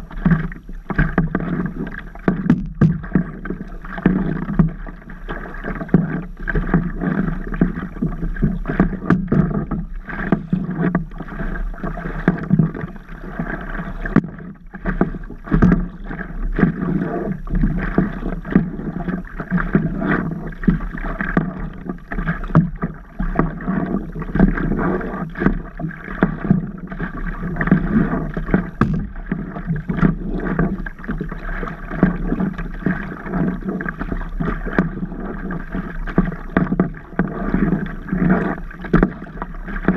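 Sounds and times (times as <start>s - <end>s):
paddle strokes through water: 0.0s - 39.9s
small knocks and splashes: 0.0s - 39.9s
water slapping against paddleboard: 0.0s - 39.9s.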